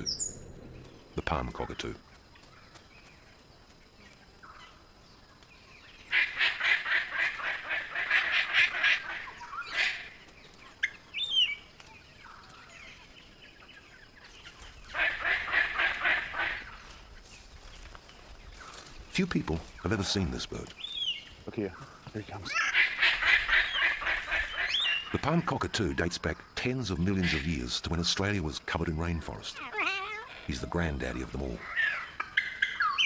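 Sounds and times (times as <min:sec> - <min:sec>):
cockatoos squawking: 0:06.1 - 0:10.2, 0:14.9 - 0:16.8, 0:22.3 - 0:25.5, 0:29.5 - 0:33.0.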